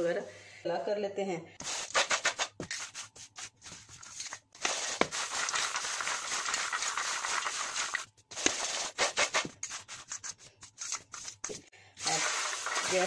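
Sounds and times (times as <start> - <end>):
cloves scraping over metal tray: 12.0 - 13.0.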